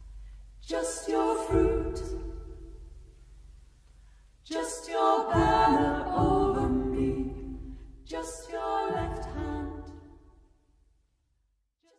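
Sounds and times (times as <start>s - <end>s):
choir singing a cappella: 0.6s - 3.0s, 4.4s - 10.4s.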